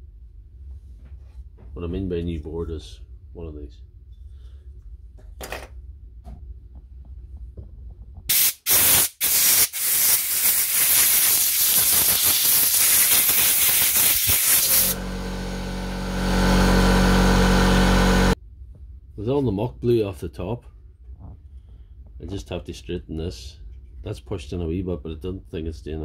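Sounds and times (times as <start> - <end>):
air blow gun hissing: 8.3 - 18.4
air compressor motor humming: 11.7 - 18.4.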